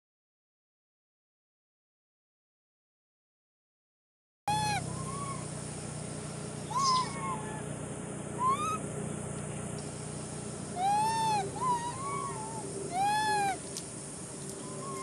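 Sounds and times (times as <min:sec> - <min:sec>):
monkey coo calls: 0:04.5 - 0:05.6, 0:06.6 - 0:07.7, 0:08.4 - 0:08.8, 0:10.7 - 0:13.8, 0:14.5 - 0:15.0
steady background hiss: 0:04.5 - 0:15.0.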